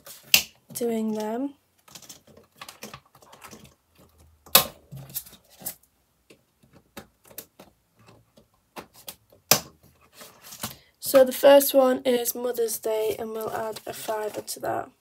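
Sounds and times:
binder pages clicking and rustling: 0:01.8 - 0:10.8, 0:13.1 - 0:14.6.

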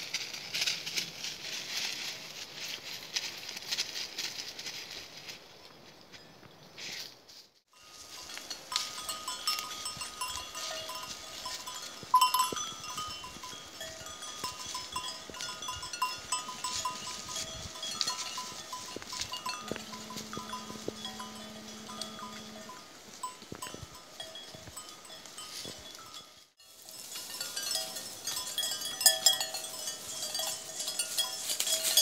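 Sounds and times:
livestock bells clinking: 0:07.7 - 0:32.0.

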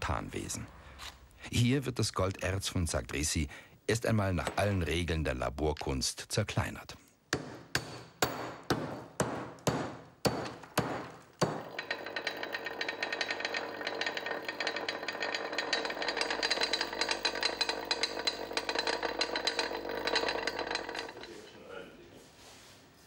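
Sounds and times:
pestle pounding in steel mortar: 0:07.3 - 0:15.0
disc mill rattling and whining: 0:11.6 - 0:21.8.

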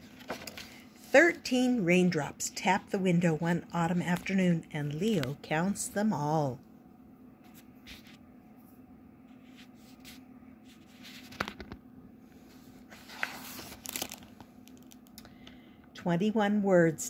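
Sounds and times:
faint low hum: 0:00.0 - 0:17.0
paper page rustling: 0:00.1 - 0:00.8, 0:07.4 - 0:08.2, 0:09.3 - 0:11.8, 0:12.5 - 0:15.0.

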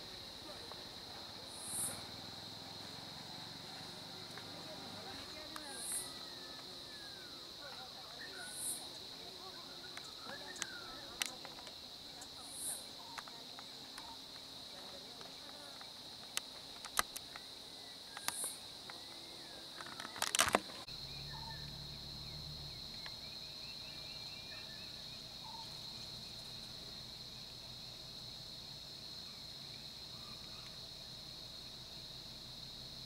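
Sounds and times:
insects droning: 0:00.0 - 0:33.0
sharp clicks: 0:19.8 - 0:20.8.

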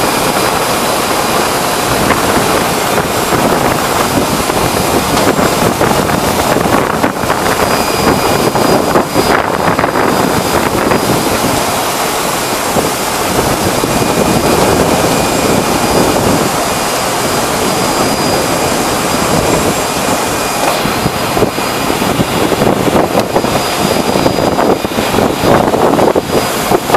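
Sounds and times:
faint high whine: 0:00.0 - 0:26.9
industrial machinery din: 0:00.0 - 0:26.9.

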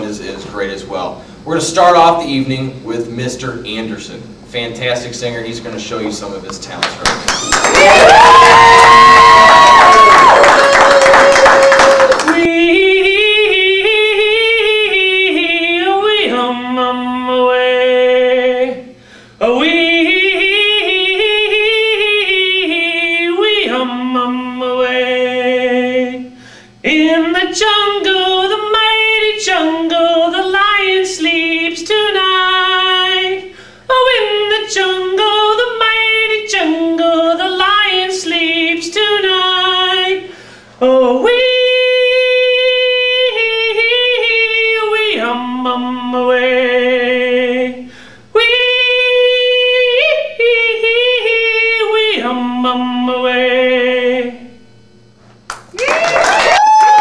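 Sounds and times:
loud cheering: 0:07.3 - 0:12.4, 0:55.8 - 0:57.0.

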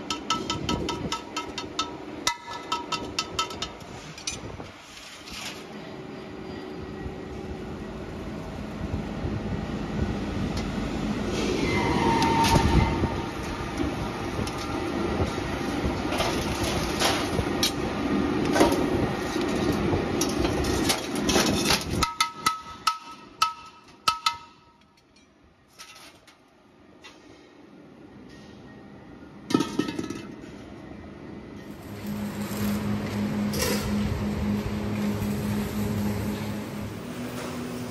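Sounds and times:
metal clanks: 0:00.0 - 0:04.5
welding machine running: 0:31.6 - 0:37.9.

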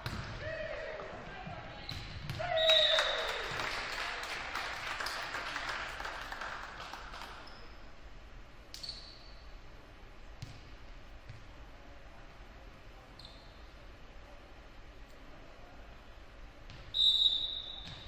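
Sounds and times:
crowd noise in gym: 0:00.0 - 0:18.0.

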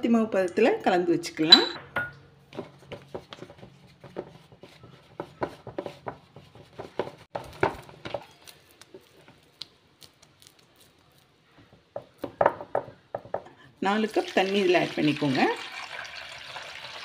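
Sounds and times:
hand kneading dough squishing: 0:02.6 - 0:12.3.

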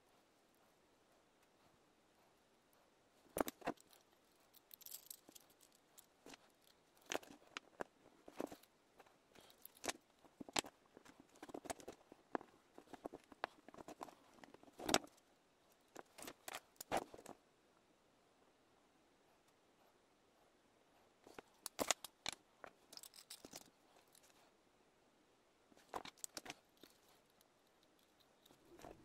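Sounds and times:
metal parts clinking on wood: 0:03.4 - 0:08.6, 0:21.3 - 0:24.3.

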